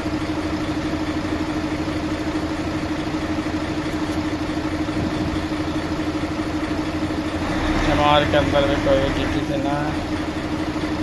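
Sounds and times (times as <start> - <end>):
truck diesel engine idling: 0.0 - 11.0.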